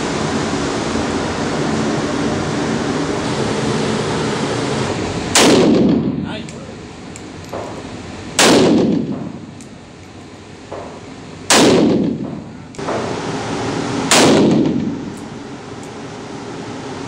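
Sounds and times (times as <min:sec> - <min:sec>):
rifle shots echoing: 0:05.4 - 0:06.1, 0:08.4 - 0:09.4, 0:11.5 - 0:13.0, 0:14.1 - 0:15.1.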